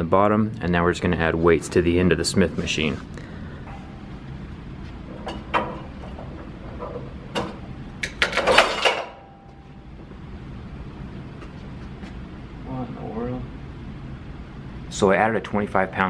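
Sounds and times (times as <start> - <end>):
steady low hum: 0.0 - 16.0
metal clanking and scraping: 3.6 - 9.5.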